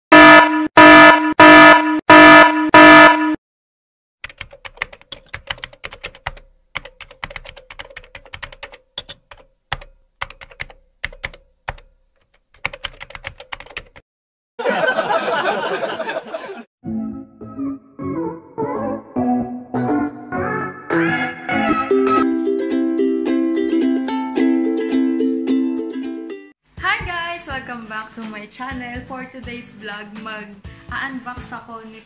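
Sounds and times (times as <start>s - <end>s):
alert buzzer: 0.1s - 3.4s
keyboard typing clicks: 4.2s - 14.0s.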